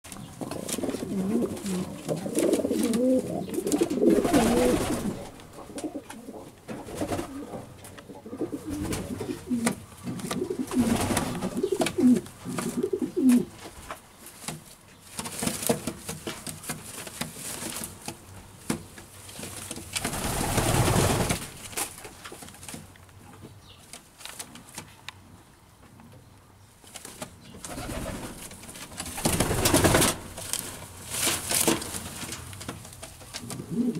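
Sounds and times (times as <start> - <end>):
pigeon cooing: 0.5 - 13.5, 33.4 - 33.9.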